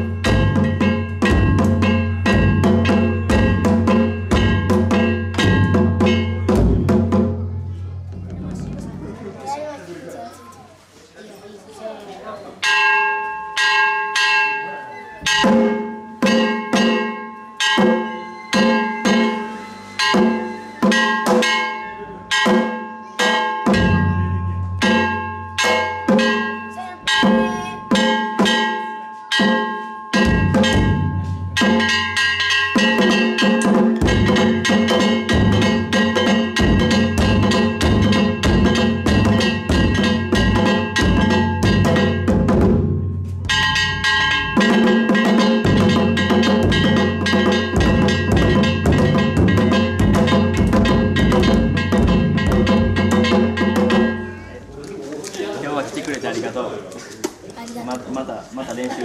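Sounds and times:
large taiko drum: 0.0s - 9.0s, 15.3s - 17.1s, 23.6s - 28.7s, 30.2s - 32.1s, 32.8s - 54.4s
small drums: 0.0s - 9.6s, 15.2s - 59.0s
hand gong struck: 30.2s - 54.4s.

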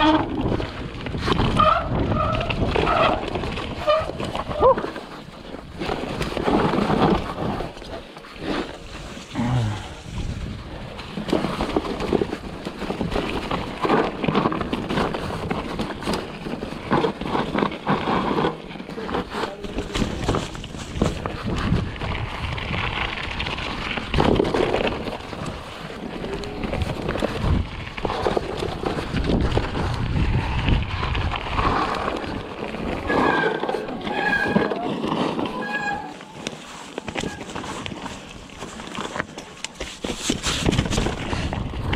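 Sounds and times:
wind buffeting microphone: 0.0s - 4.6s, 9.4s - 13.6s, 20.0s - 33.2s, 40.3s - 41.9s
bike knocking and rattling: 0.0s - 41.9s
bike tyres rolling over snow and dirt: 0.0s - 41.9s
short high-pitched squeals: 35.5s - 36.4s.

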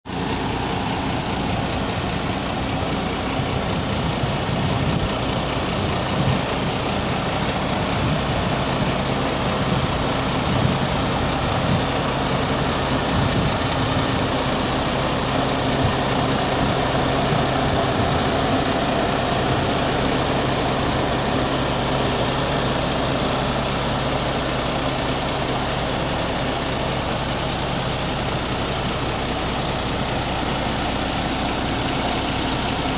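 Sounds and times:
diesel truck engine idling: 0.1s - 32.9s.

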